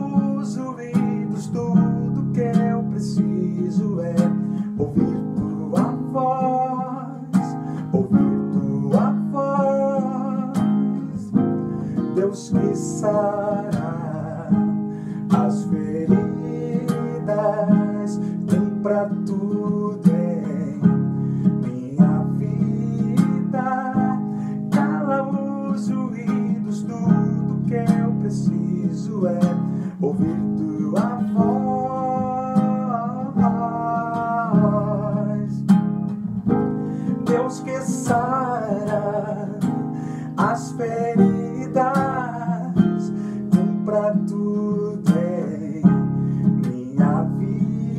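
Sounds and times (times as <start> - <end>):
man singing: 0.0 - 35.8, 36.5 - 47.9
classical guitar strumming: 0.0 - 47.9.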